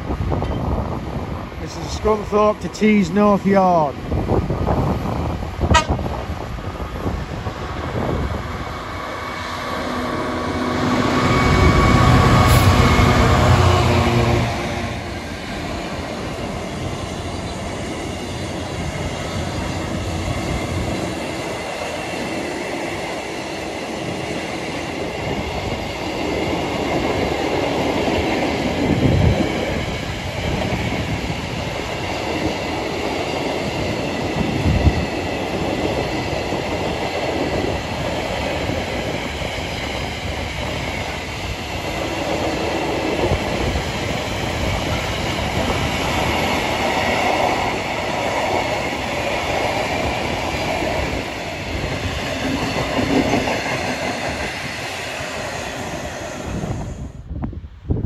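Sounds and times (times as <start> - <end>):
diesel locomotive passing: 0.0 - 57.9.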